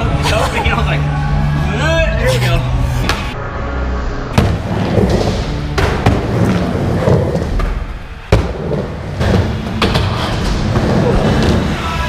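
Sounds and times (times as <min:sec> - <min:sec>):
background music: 0:00.0 - 0:12.0
skateboard wheels rolling: 0:04.4 - 0:12.0.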